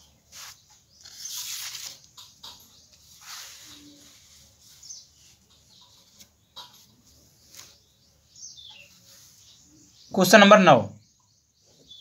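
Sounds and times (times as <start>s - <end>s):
faint bird chirps: 0.0s - 12.0s
paper rustling: 0.3s - 5.4s.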